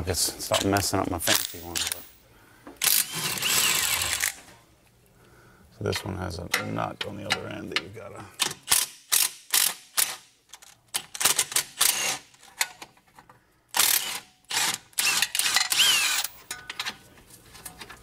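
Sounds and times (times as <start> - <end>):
cordless ratchet spinning bolt: 13.8 - 16.4.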